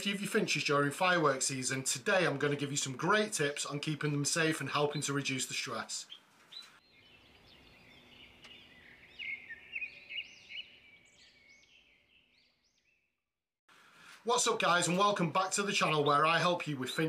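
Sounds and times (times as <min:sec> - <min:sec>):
small songbird chirping: 0:06.0 - 0:13.2.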